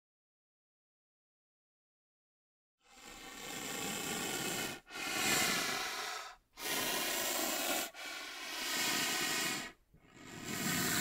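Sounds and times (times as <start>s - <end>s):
rhinoceros breathing heavily: 2.9s - 11.0s.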